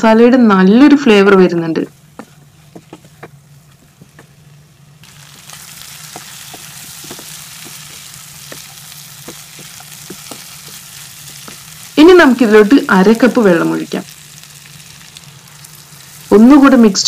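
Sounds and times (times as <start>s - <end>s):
chicken sizzling in a pan: 4.4s - 17.0s
spatula knocking against pan: 6.1s - 11.6s.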